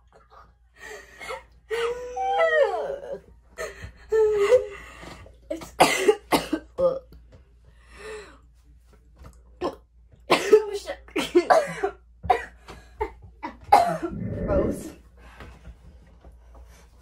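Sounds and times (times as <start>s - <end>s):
girls coughing and spluttering: 5.6s - 6.9s, 13.7s - 14.9s.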